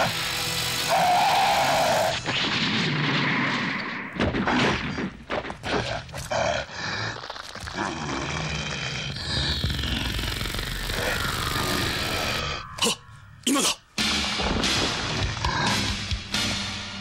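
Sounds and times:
crackling sparks: 0.0 - 4.0, 6.8 - 12.4
creature cry and growls: 0.8 - 2.2, 5.9 - 13.8
monster screech: 0.8 - 2.2, 9.1 - 13.2.

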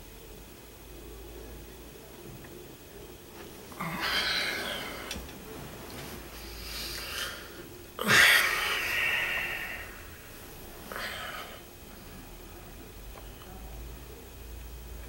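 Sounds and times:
man breathing noisily: 3.7 - 12.3.

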